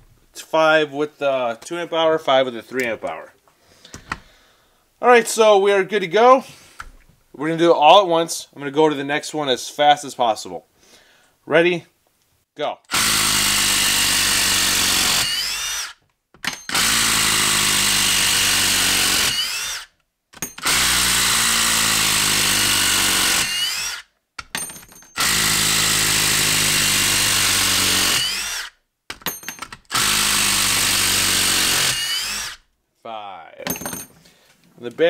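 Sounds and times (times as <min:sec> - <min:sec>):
impact driver hammering screws: 0:12.9 - 0:32.6.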